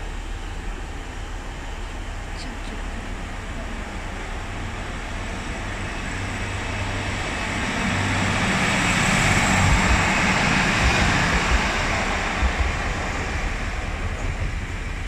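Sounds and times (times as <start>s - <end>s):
diesel train engine hum: 0.0s - 15.0s
rushing rail noise: 0.0s - 15.0s
train wheels knocking: 8.9s - 14.4s.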